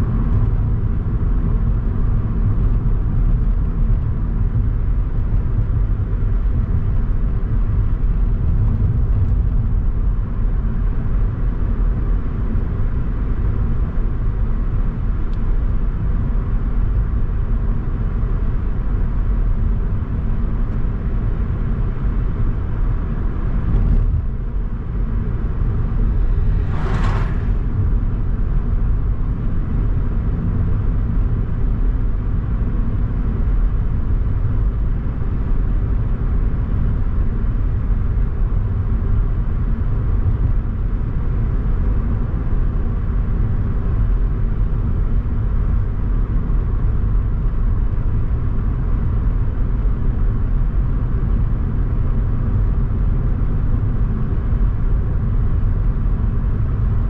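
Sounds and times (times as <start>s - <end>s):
car driving on road: 0.0s - 57.0s
brief whoosh: 25.3s - 29.3s.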